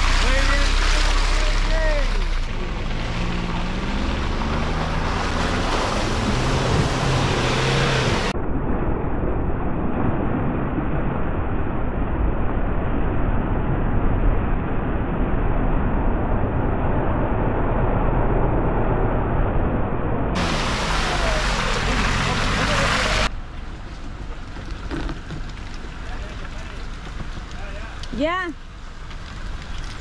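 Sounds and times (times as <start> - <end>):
engine running under load: 0.0 - 8.4, 20.4 - 30.0
dense steady rushing noise: 4.9 - 24.5.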